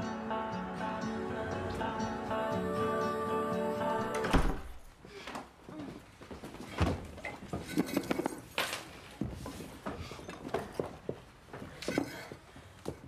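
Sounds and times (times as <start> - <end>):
background music: 0.0 - 4.8.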